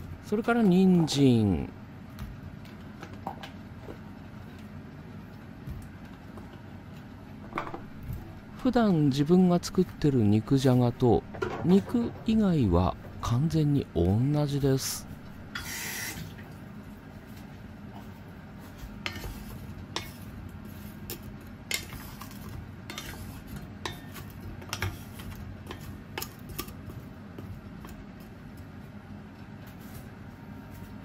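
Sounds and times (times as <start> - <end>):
wooden spatula stirring vegetables in pot: 18.6 - 28.3.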